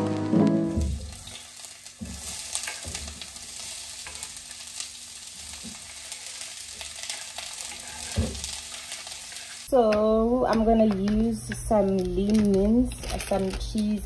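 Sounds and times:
onion sizzling in oil: 0:00.0 - 0:09.9.

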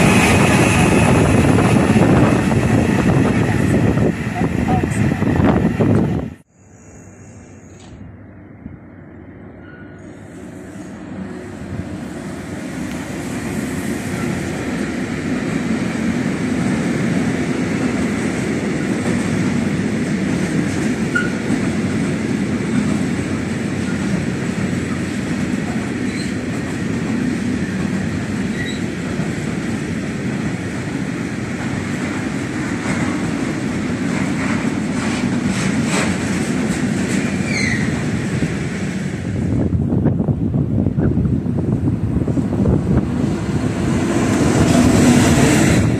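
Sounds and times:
train wheels rumbling on rails: 0:00.0 - 0:06.5, 0:09.6 - 0:45.9
wheel squeals: 0:26.1 - 0:26.4, 0:28.5 - 0:28.9, 0:37.3 - 0:38.0.

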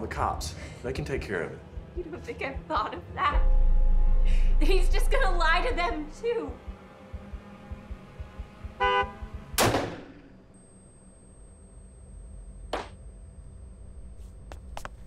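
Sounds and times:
car horn honk: 0:08.8 - 0:09.4
revolver gunshot: 0:09.6 - 0:10.2
high steady ringing tone: 0:10.5 - 0:14.8.

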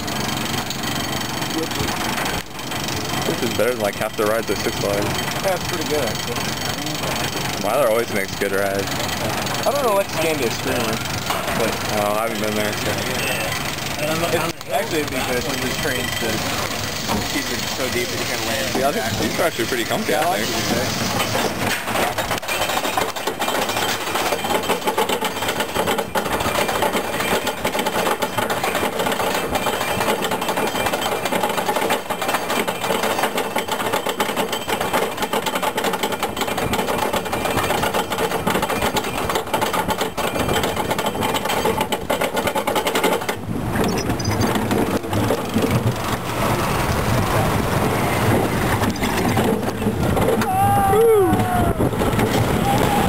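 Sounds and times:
lift chain clattering: 0:00.0 - 0:46.8, 0:48.0 - 0:50.4
deep rushing noise: 0:43.5 - 0:53.0.

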